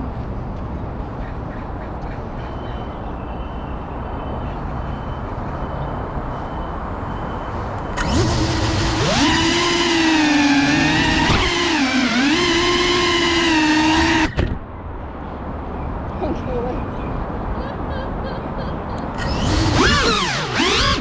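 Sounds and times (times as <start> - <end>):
drone motors whining: 7.9 - 14.6, 19.1 - 21.0.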